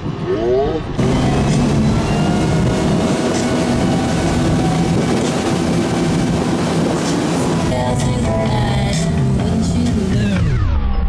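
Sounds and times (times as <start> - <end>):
rushing wind: 0.0 - 10.1
water noise: 0.0 - 10.1
boat engine running: 0.8 - 10.6.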